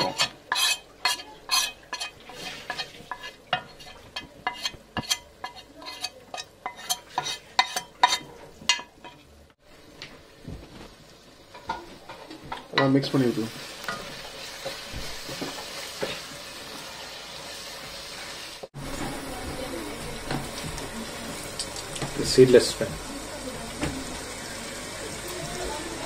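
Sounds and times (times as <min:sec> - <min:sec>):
metal spoon clinking and scraping: 0:00.0 - 0:09.3.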